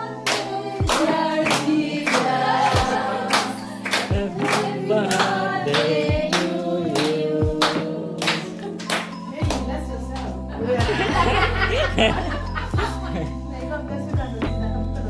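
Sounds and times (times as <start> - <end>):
group singing: 0.0 - 9.1
hand claps: 0.2 - 10.3.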